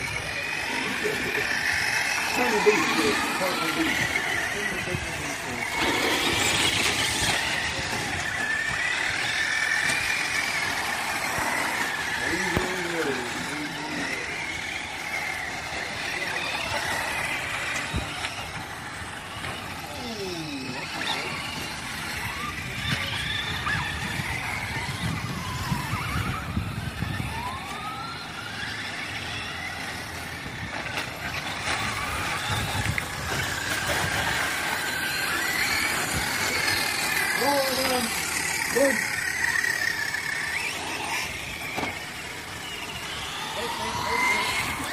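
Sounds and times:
rc car motors whining: 0.0s - 44.9s.

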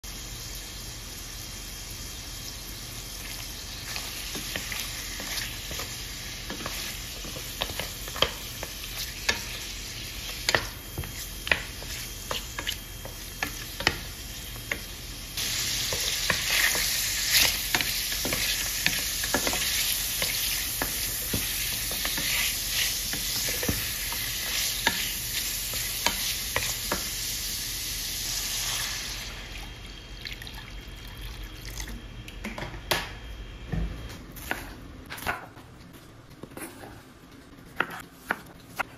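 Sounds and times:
meat sizzling in butter: 0.1s - 29.5s.

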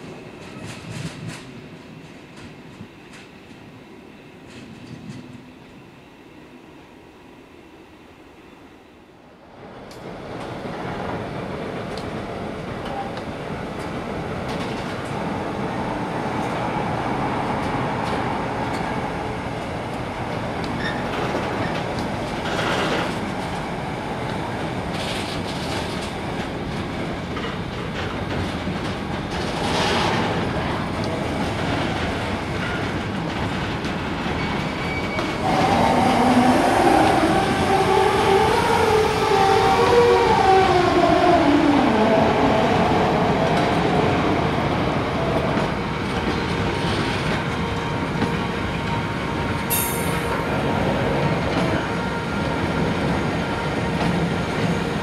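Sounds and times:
freight train rolling rumble: 0.0s - 7.6s, 9.1s - 55.0s
train wheels clacking over rail joints: 20.6s - 23.2s
wheel squeal: 20.8s - 21.8s, 34.4s - 35.7s.

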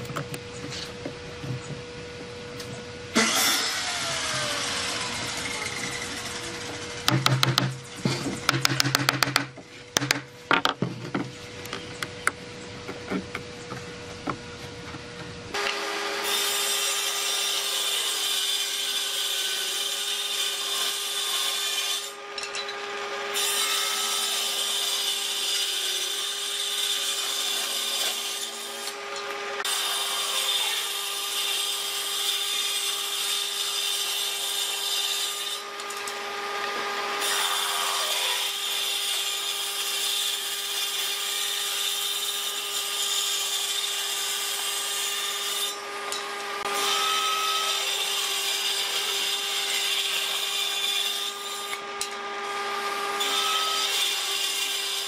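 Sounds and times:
table saw ripping boards: 3.1s - 11.3s, 15.5s - 55.0s
wooden mallet knocking on boards: 7.1s - 10.9s.

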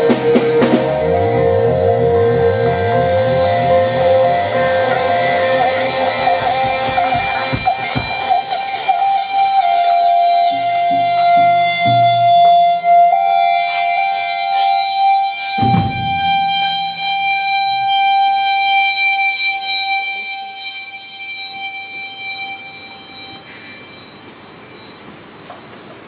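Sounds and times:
rock band holding high note: 0.0s - 17.6s
heavy low hit: 15.6s - 17.2s.

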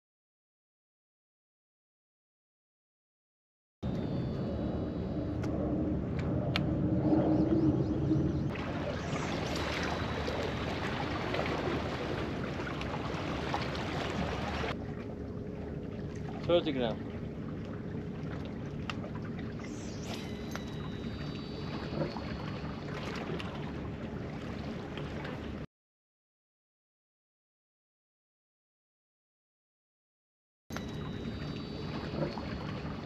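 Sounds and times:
fishing reel spool whine: 3.8s - 25.6s, 30.7s - 33.0s
wind: 3.8s - 25.7s, 30.7s - 33.0s
sea water rushing on rocks: 8.5s - 14.8s.

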